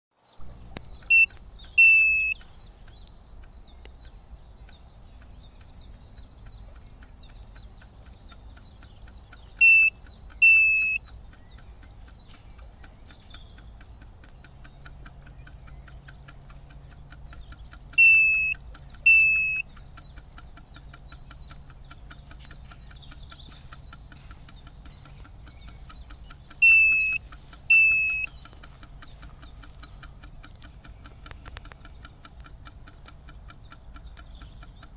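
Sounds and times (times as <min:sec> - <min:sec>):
faint fast ticking: 0:00.2 - 0:34.9
short high beeps: 0:01.1 - 0:02.4, 0:09.6 - 0:11.0, 0:18.0 - 0:19.6, 0:26.6 - 0:28.3.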